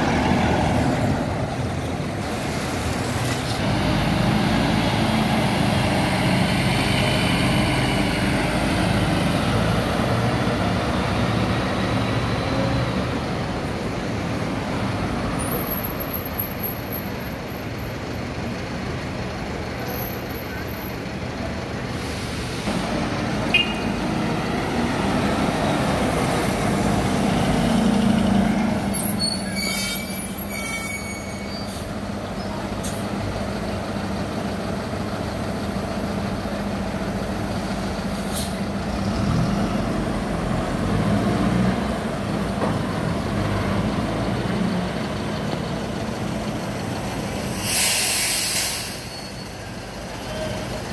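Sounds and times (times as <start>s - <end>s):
buses running: 0.0s - 50.9s
air brakes squealing and hissing: 15.3s - 17.4s, 21.9s - 22.8s, 28.5s - 33.2s, 38.0s - 38.7s, 46.8s - 50.9s
burst of air hissing: 47.4s - 49.1s.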